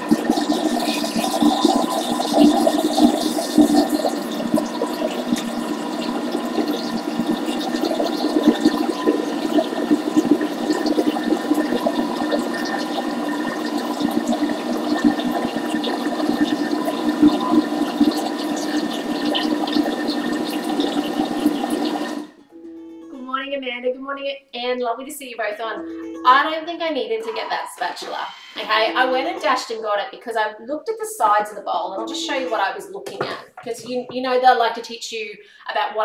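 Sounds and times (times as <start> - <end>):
batter churning in bowl: 0.0 - 22.2
blender motor whine: 0.0 - 22.4.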